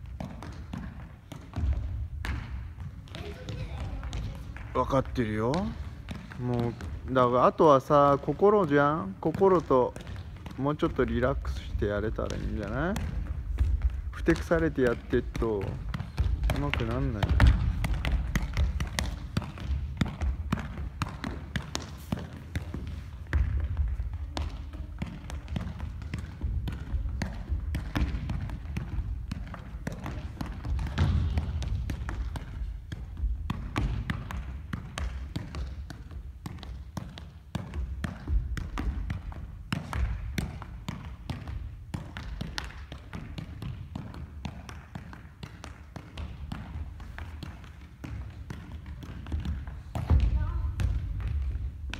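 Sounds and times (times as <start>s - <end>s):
ball taps echoing in gym: 0.0s - 51.9s.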